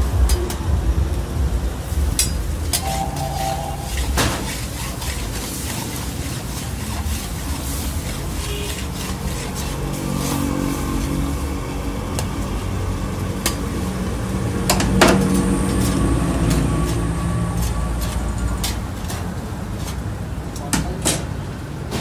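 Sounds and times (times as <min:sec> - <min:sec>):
burner low rumble: 0:00.0 - 0:19.6
metal utensils scraping steel pan: 0:02.2 - 0:11.3, 0:14.7 - 0:21.4.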